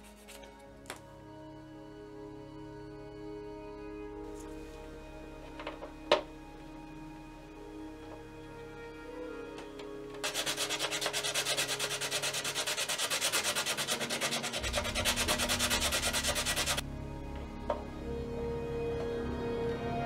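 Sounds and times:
background music: 0:00.0 - 0:20.0
sanding pad rasping on plastic: 0:10.2 - 0:16.8.

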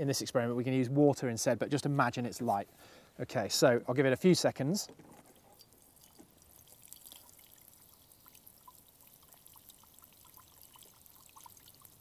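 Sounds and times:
water drops into glass jars: 0:05.4 - 0:12.0
water sprinkling onto grass: 0:05.5 - 0:12.0.

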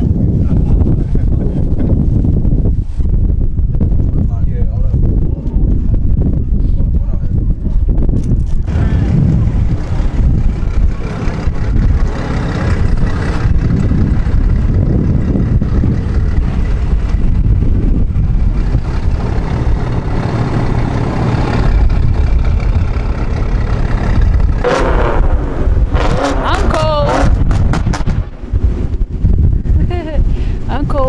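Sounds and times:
cars idling: 0:08.7 - 0:30.2.

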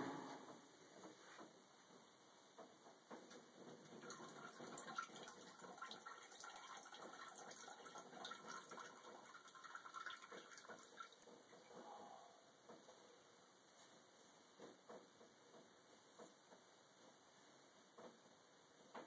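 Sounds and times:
cat urinating into toilet water: 0:03.3 - 0:11.8.

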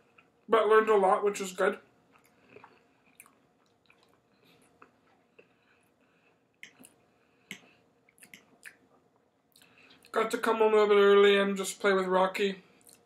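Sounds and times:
man chewing soft food: 0:02.0 - 0:10.1, 0:12.8 - 0:13.0.

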